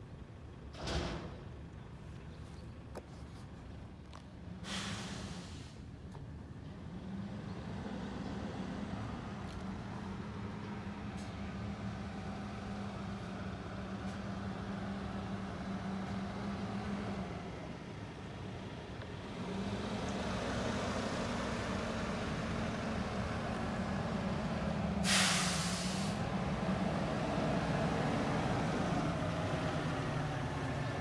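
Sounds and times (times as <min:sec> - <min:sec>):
air brakes hissing: 0:04.6 - 0:06.0, 0:25.0 - 0:26.3
truck diesel engine droning: 0:06.7 - 0:31.0.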